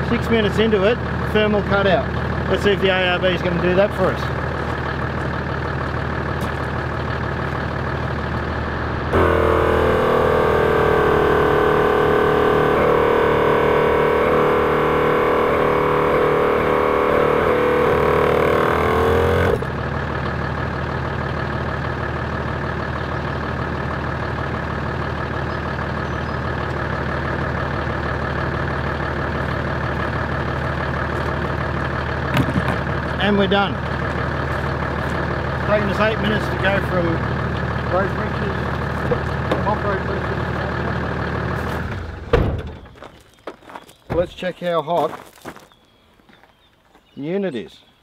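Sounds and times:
car engine idling: 0.0s - 43.1s
air compressor running: 5.9s - 19.7s
loud sound with held tones: 8.2s - 19.7s.

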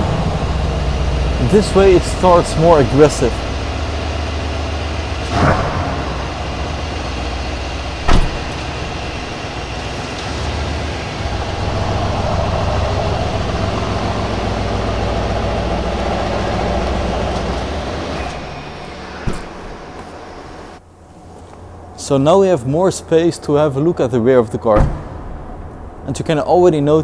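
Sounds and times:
car engine idling: 0.0s - 26.3s
car door shutting: 8.0s - 9.2s, 17.3s - 20.2s.

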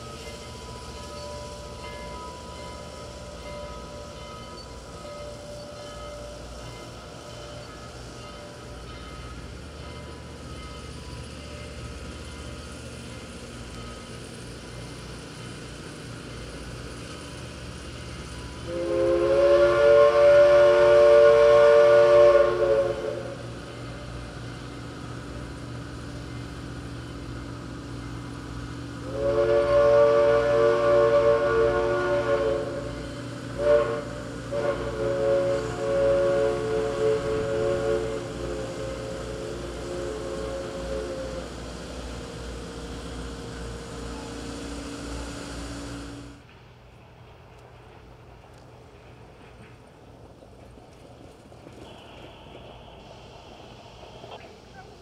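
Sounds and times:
steam locomotive chime whistle: 0.0s - 14.2s, 18.1s - 24.8s, 29.0s - 46.4s
rumble of passing rail cars: 0.0s - 55.0s.

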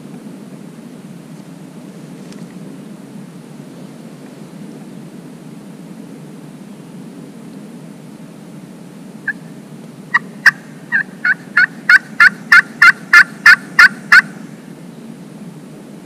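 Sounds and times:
turkey call hen yelps: 10.1s - 14.4s.

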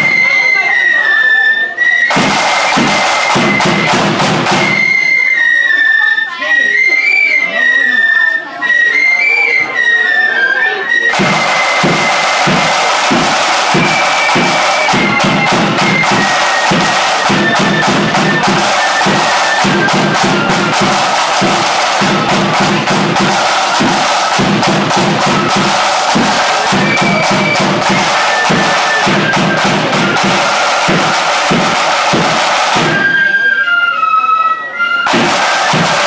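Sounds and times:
high flute melody: 0.0s - 36.0s
side drums rattling: 2.1s - 5.2s, 11.1s - 33.3s, 35.1s - 36.0s
bass drum beating: 11.2s - 33.0s.

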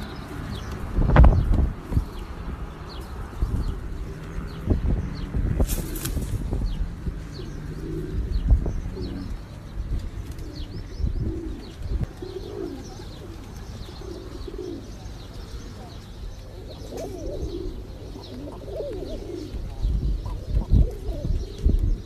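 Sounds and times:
pigeons cooing: 0.0s - 22.0s
small birds chirping: 0.0s - 22.0s.

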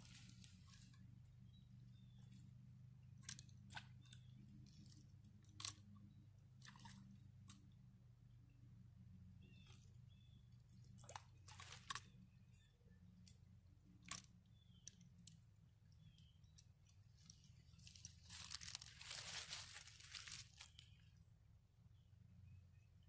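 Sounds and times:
dry leaves rustling underfoot: 0.0s - 1.0s, 17.2s - 21.0s.

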